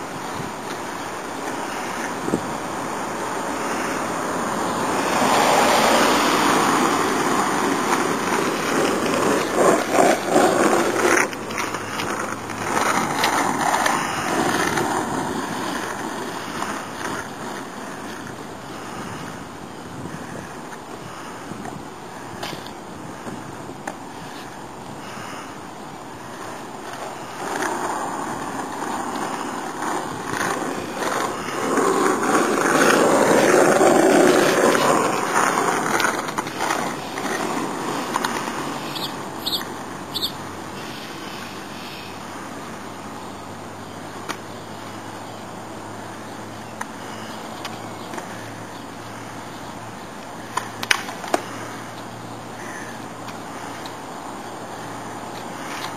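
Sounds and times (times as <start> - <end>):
skateboard wheels rolling on asphalt: 0.0 - 55.9.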